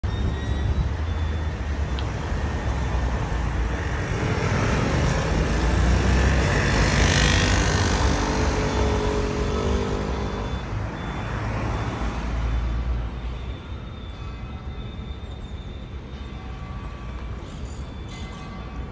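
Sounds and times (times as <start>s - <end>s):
traffic engines rumbling: 0.0s - 18.9s
scooters passing: 2.1s - 10.5s.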